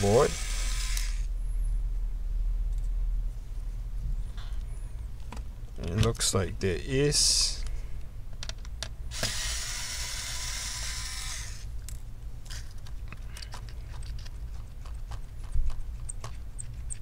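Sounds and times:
electric screwdriver whirring: 0.0s - 1.3s, 9.1s - 11.6s.

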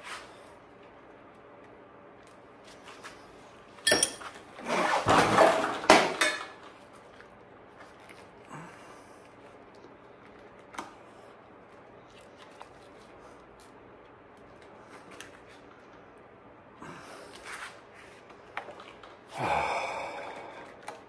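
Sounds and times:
metal tools clinking: 3.8s - 4.3s
metal parts rattling and scraping: 3.9s - 4.3s.

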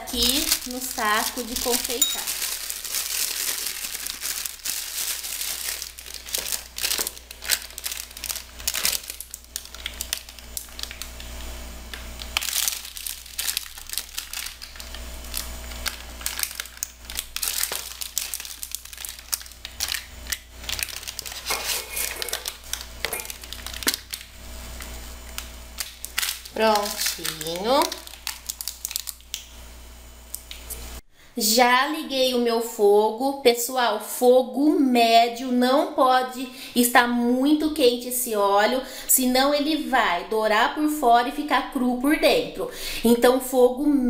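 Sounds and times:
plastic piping bag crinkling: 0.0s - 29.6s
spoon scraping plastic bowl: 21.3s - 22.4s.

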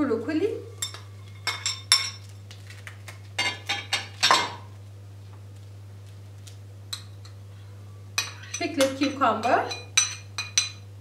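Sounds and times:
metal spoon clinking on ceramic bowls: 0.8s - 2.2s, 6.9s - 7.4s, 8.2s - 10.8s.

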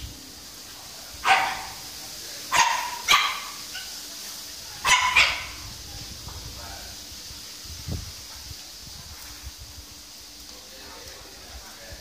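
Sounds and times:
small dogs yapping: 1.2s - 1.8s, 2.5s - 4.1s, 4.8s - 5.7s.

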